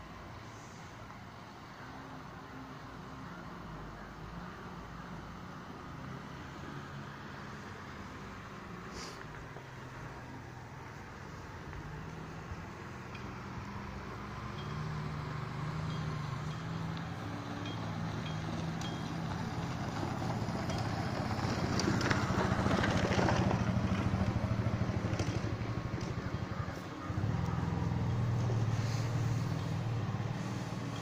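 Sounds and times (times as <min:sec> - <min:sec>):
road noise on rough road: 0:00.0 - 0:31.0
vehicle engine running: 0:06.9 - 0:31.0.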